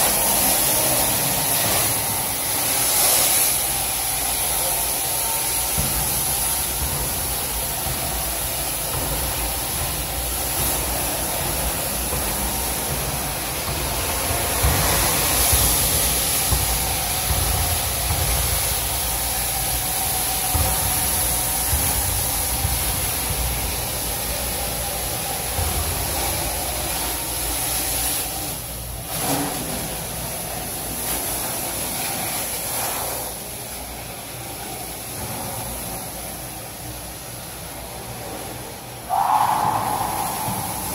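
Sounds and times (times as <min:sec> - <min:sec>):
suction and spray hiss: 0:00.0 - 0:36.0, 0:39.0 - 0:40.9
low machine rumble: 0:39.0 - 0:40.9.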